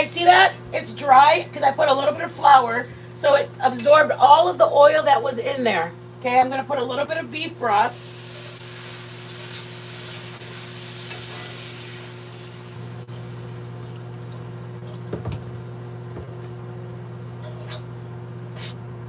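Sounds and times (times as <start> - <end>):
steady low hum: 0.0 - 19.0
broth sizzling in a hot skillet: 6.9 - 15.7.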